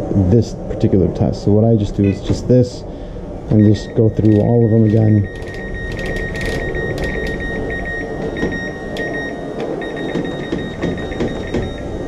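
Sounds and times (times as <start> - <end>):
steady low hum: 0.0 - 12.0
steady high tone: 3.5 - 12.0.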